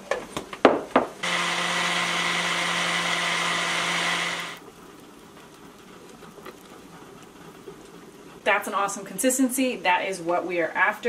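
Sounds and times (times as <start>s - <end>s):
blender grinding seeds: 1.2s - 4.6s.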